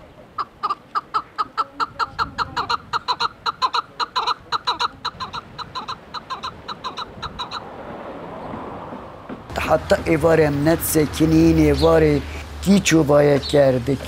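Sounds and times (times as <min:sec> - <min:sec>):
partridge clucking calls: 0:00.3 - 0:07.7.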